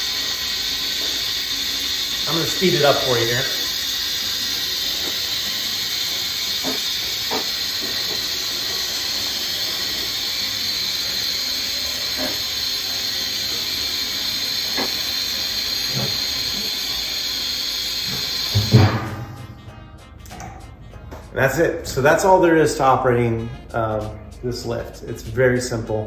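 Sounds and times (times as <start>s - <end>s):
hydraulic fluid hissing: 0.0s - 19.8s.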